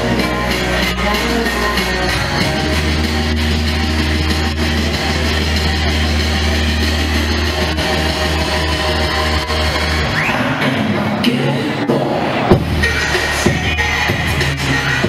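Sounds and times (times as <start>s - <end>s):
deep bass note: 0.0s - 10.4s
dance music over speakers: 0.0s - 15.0s.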